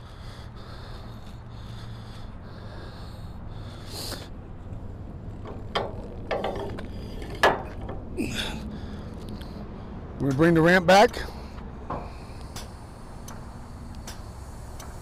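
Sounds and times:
metal clank: 5.4 - 8.0.

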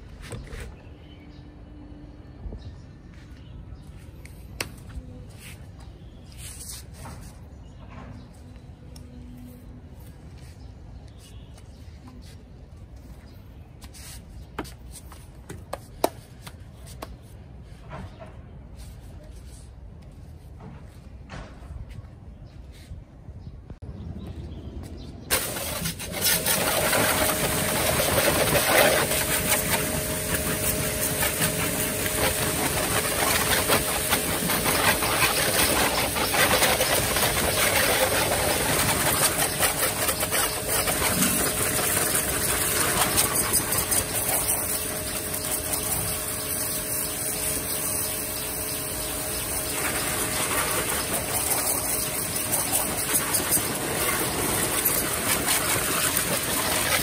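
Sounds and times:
high-pressure water jet hissing: 25.3 - 57.0
pressure washer pump humming: 25.3 - 57.0.

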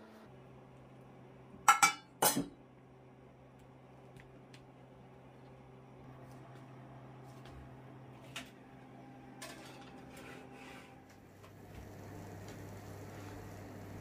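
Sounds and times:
metal pan clattering on oven rack: 1.7 - 2.5.

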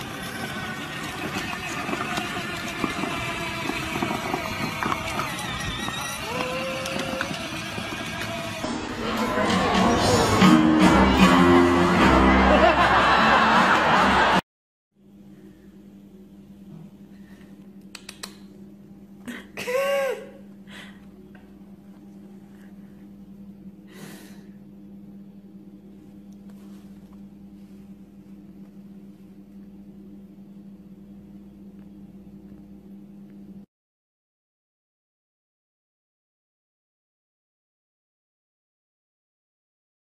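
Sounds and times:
high squeaky animal call: 5.2 - 7.1
steady low hum: 15.0 - 33.7.

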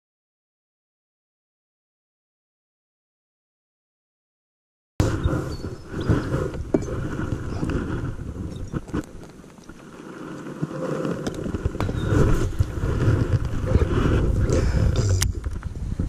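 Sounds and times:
wind buffeting microphone: 5.0 - 16.0.

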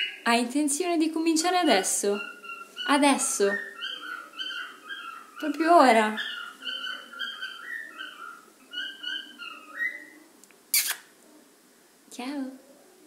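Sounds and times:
pet whistling calls: 1.7 - 11.1.

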